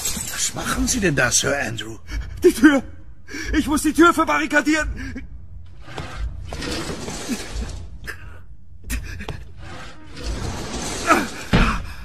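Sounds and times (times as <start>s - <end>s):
heavy desk scraping across floor: 5.8s - 7.9s, 9.6s - 11.6s.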